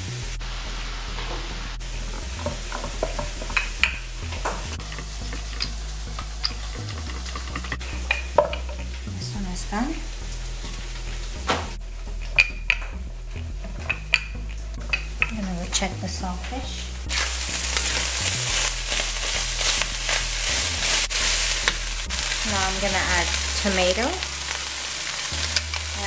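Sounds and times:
fish sizzling in a pan: 0:01.5 - 0:09.0, 0:17.1 - 0:26.0.

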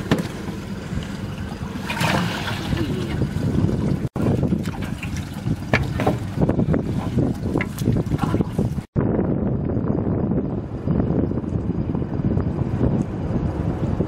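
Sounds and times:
water trickling and splashing: 0:00.0 - 0:09.0
wind rumble on microphone: 0:00.0 - 0:14.0.

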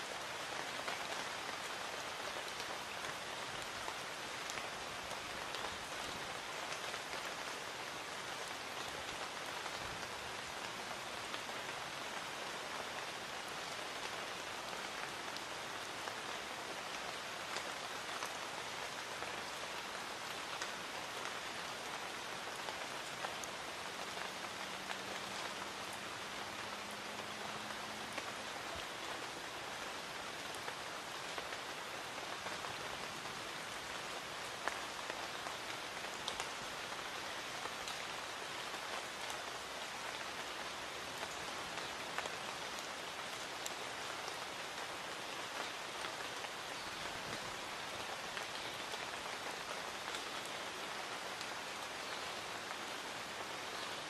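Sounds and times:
light rain hissing: 0:00.0 - 0:54.0.

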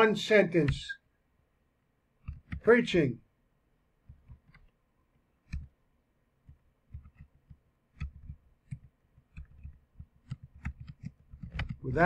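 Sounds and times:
keyboard typing: 0:02.2 - 0:02.7, 0:06.5 - 0:12.0.

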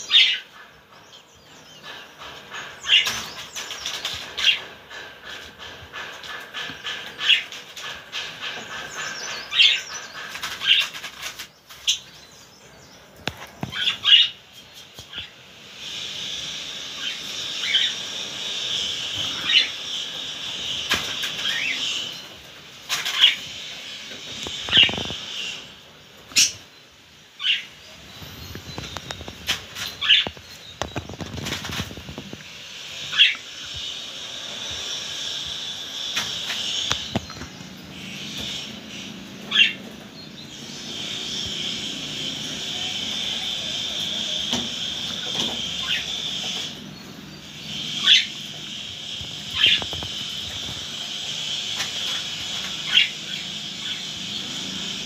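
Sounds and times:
budgerigars chirping: 0:00.0 - 0:05.0, 0:06.6 - 0:14.4, 0:15.1 - 0:22.3, 0:24.2 - 0:25.7, 0:27.4 - 0:31.9, 0:32.8 - 0:55.0
wing flutters: 0:01.8 - 0:12.1, 0:13.2 - 0:26.6, 0:27.4 - 0:46.9, 0:47.6 - 0:55.0
high warbling chatter: 0:13.7 - 0:55.0.

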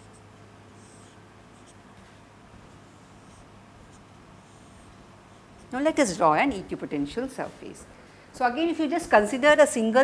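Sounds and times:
marker pen drawing on whiteboard: 0:00.0 - 0:01.8, 0:02.6 - 0:07.8.

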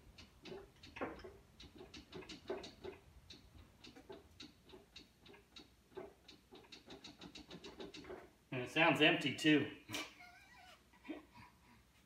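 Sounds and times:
axle gears clicking and clunking: 0:00.0 - 0:08.4.

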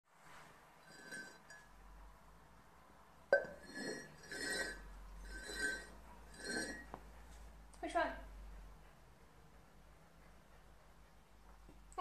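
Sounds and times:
ceramic mugs clinking: 0:00.9 - 0:01.7, 0:03.3 - 0:07.0.

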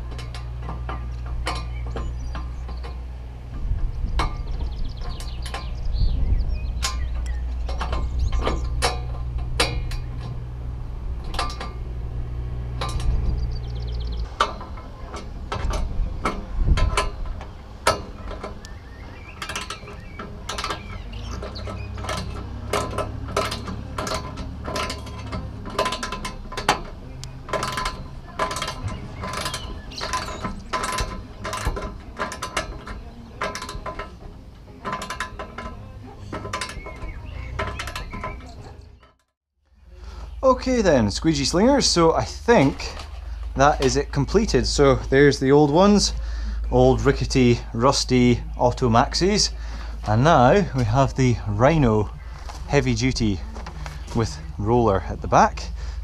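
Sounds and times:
ratcheting spanner clicking: 0:00.0 - 0:39.3
low rumble: 0:00.0 - 0:56.0.

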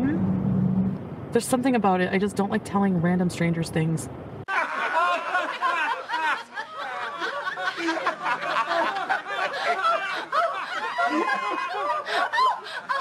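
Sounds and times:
people laughing hard: 0:04.5 - 0:13.0.

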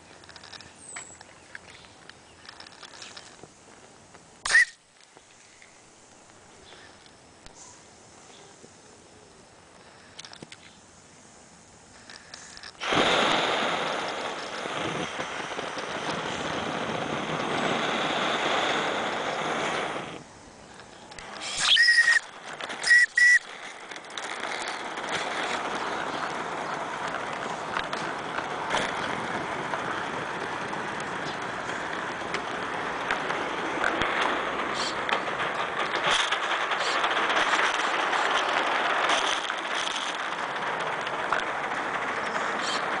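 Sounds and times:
quieter steam hiss: 0:00.0 - 0:43.0
loud steam hiss: 0:10.8 - 0:39.0
short high-pitched tones: 0:22.8 - 0:23.4.

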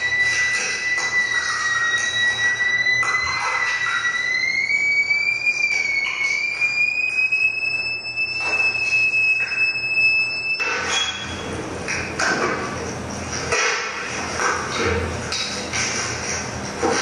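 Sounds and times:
theremin high gliding tone: 0:00.0 - 0:11.5.

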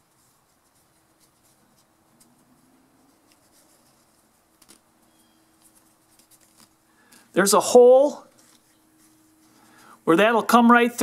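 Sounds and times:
faint rustles: 0:00.0 - 0:07.4.

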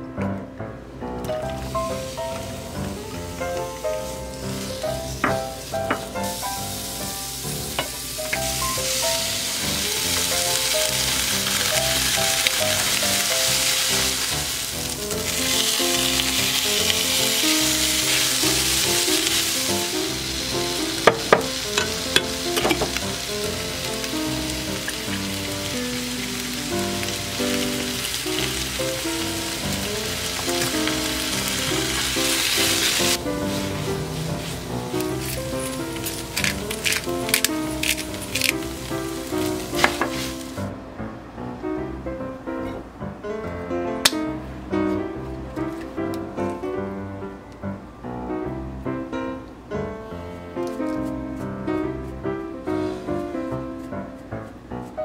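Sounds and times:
light background music: 0:01.1 - 0:55.0
food sizzling in frying pan: 0:01.4 - 0:40.8.

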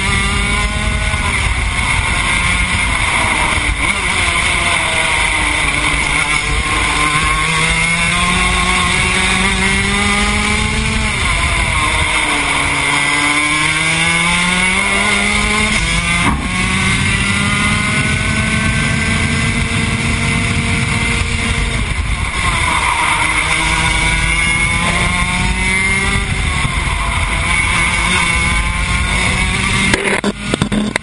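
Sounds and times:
kart two-stroke engine revving: 0:00.0 - 0:31.0
sharp knocks: 0:16.1 - 0:17.0.

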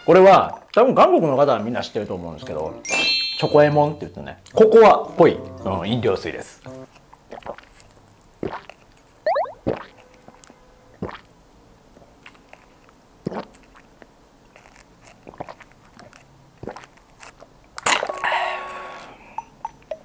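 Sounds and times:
wet mouth clicks and gulps: 0:07.1 - 0:10.0, 0:11.0 - 0:11.3, 0:13.2 - 0:13.9, 0:15.0 - 0:16.9
person drinking through a straw: 0:07.3 - 0:07.8, 0:08.4 - 0:09.9, 0:13.3 - 0:13.7.

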